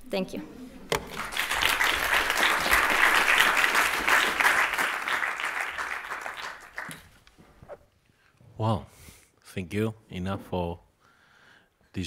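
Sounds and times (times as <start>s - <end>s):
audience applauding: 0.9s - 7.2s.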